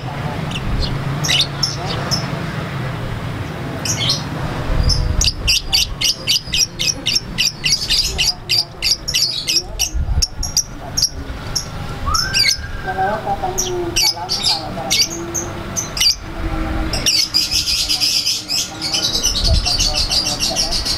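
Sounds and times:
bird chirping: 0.0s - 2.4s, 3.4s - 20.9s.

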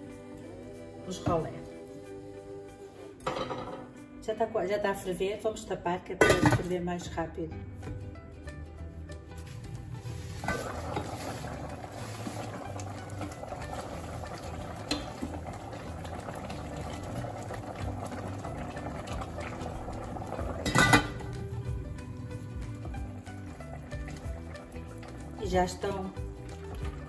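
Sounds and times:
sauce boiling in a pot: 9.4s - 27.0s
steel lid clanking onto pot: 20.6s - 21.2s.

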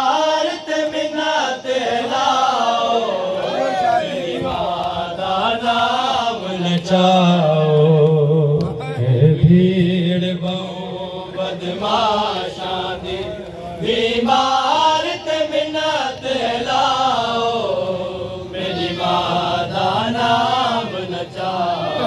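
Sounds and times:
man chanting a lament: 0.0s - 12.4s, 13.0s - 22.0s.

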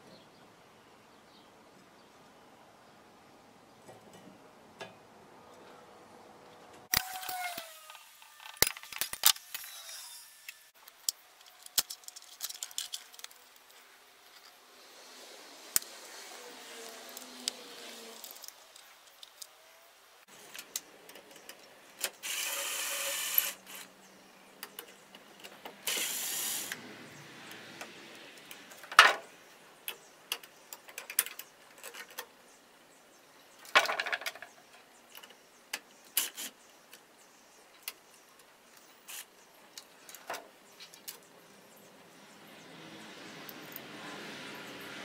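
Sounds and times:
cordless drill driving screws: 6.9s - 10.6s, 22.2s - 23.9s, 25.9s - 26.8s
clicks and knocks of handling: 10.8s - 14.6s.

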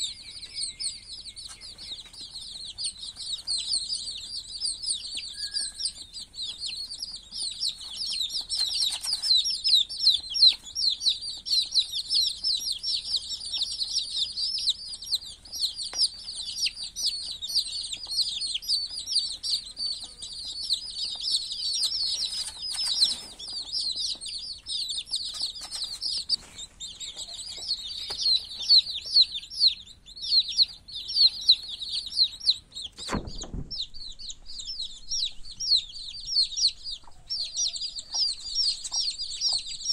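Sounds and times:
chicks peeping: 0.0s - 39.9s
dull thump: 33.0s - 34.0s.

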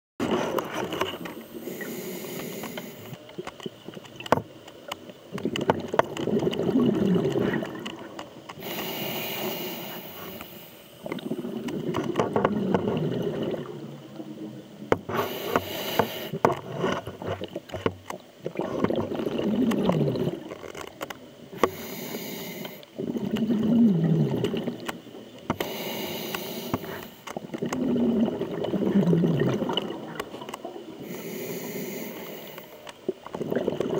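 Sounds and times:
diver breathing through regulator: 1.4s - 3.2s, 8.6s - 11.7s, 15.1s - 16.4s, 21.6s - 23.3s, 25.6s - 27.3s, 31.0s - 32.8s.

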